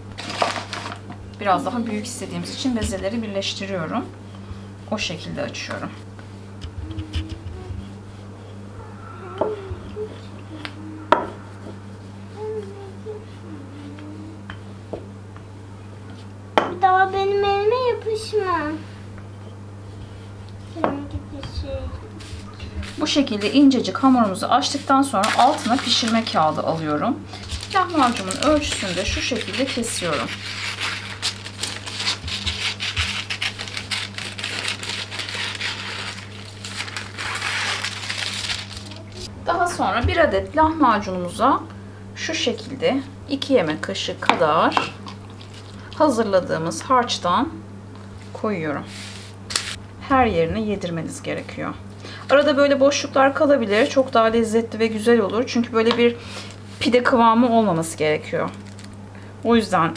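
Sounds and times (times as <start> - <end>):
steady low hum: 0.0 - 59.9
paper crinkling and rustling: 0.2 - 1.0, 24.8 - 39.3, 49.0 - 49.8, 58.6 - 59.0
scissors snipping paper: 27.4 - 39.0
rolling pin rolling dough: 27.6 - 31.3.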